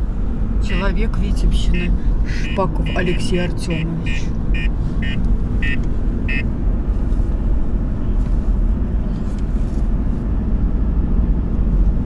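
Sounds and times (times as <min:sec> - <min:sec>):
car road and engine rumble: 0:00.0 - 0:12.0
short electronic beep: 0:04.0 - 0:06.4.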